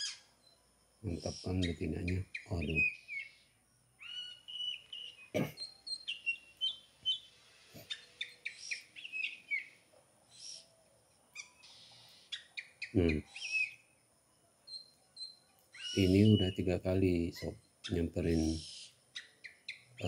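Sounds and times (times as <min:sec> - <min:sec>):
bird whistling chirps: 0:01.3 - 0:03.4, 0:04.0 - 0:10.7, 0:11.4 - 0:13.9, 0:14.7 - 0:16.7.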